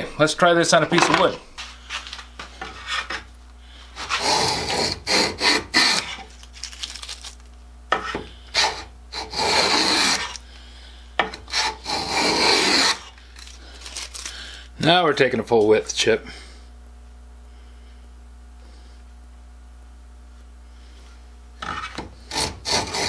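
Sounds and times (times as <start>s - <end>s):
hand plane cutting wood shavings: 4.0s - 6.3s, 8.0s - 10.4s, 11.4s - 13.1s, 21.6s - 23.0s.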